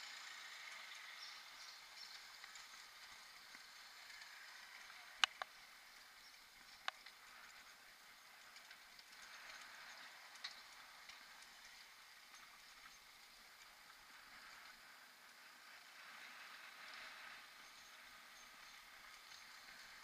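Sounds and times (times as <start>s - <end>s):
bike rattling on cobblestones: 0.0s - 20.0s
sharp clicks: 5.2s - 5.6s.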